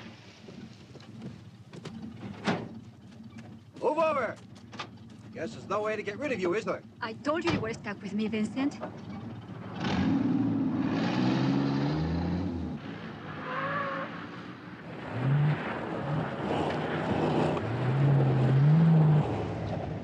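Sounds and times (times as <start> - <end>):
car engines revving hard: 9.2 - 20.0.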